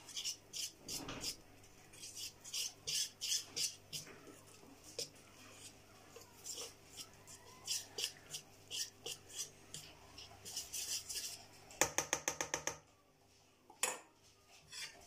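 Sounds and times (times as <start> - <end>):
whisk swishing through batter: 0.0 - 11.8.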